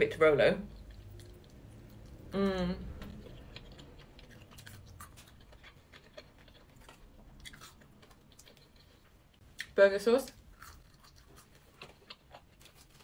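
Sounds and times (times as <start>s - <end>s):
chewing crispy fried chicken: 0.6s - 13.0s
person humming: 2.4s - 2.8s.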